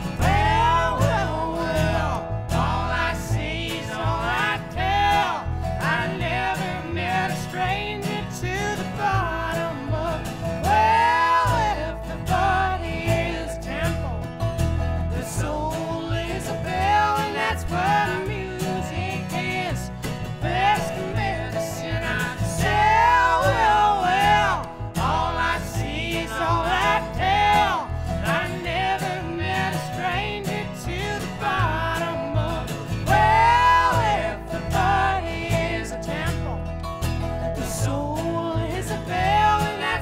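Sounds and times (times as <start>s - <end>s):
man singing harmony: 0.0s - 14.2s, 15.1s - 36.7s, 37.5s - 40.0s
acoustic guitar: 0.0s - 40.0s
upright bass: 0.0s - 40.0s
woman singing lead: 15.2s - 36.5s.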